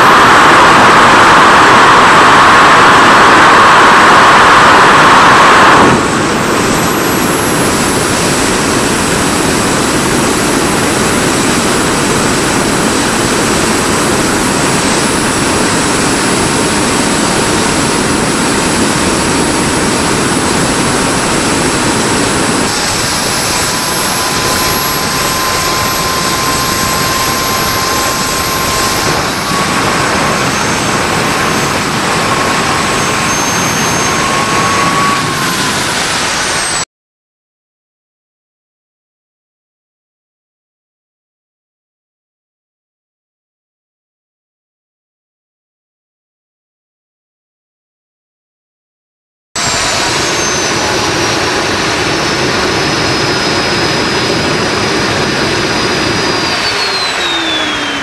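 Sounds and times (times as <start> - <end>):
turbojet engine roaring: 0.0 - 36.9, 49.6 - 58.0.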